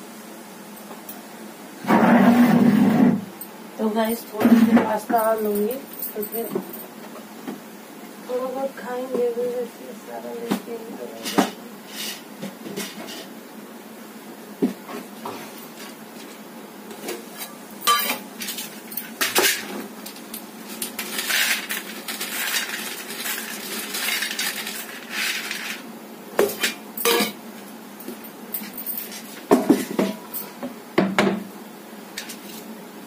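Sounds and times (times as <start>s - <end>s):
metal plates clinking and scraping: 17.9s - 18.2s, 26.6s - 27.4s
dry pasta rattling: 20.1s - 25.8s
rustling: 20.2s - 25.9s.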